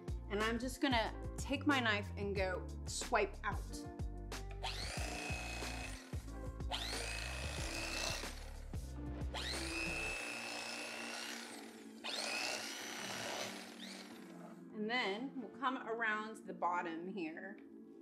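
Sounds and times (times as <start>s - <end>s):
background music: 0.0s - 18.0s
electric carving knife whine: 4.7s - 6.1s, 6.7s - 8.6s, 9.4s - 14.5s.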